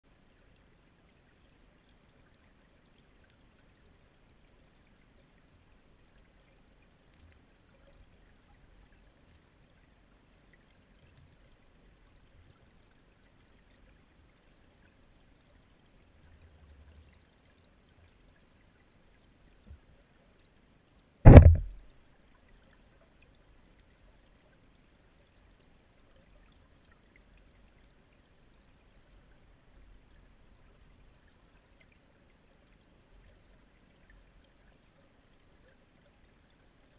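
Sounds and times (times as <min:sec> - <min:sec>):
faint low rumble: 0:21.3 - 0:21.8
sharp loud knock: 0:21.3 - 0:21.8.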